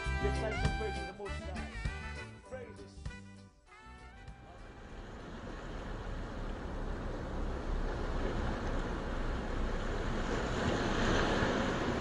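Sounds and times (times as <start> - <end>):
surf washing on beach: 4.6 - 12.0.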